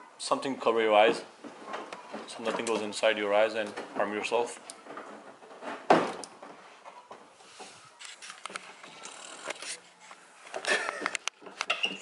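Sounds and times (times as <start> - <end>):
faint clicks of plastic fasteners: 3.6 - 9.8.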